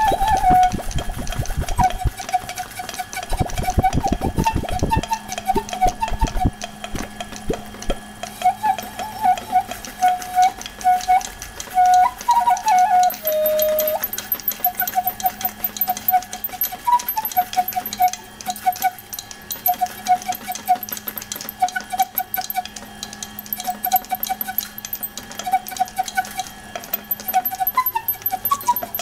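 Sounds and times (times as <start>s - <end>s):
flute-like melody: 0.0s - 7.3s, 8.0s - 29.0s
light fast ticking rhythm: 13.0s - 19.8s.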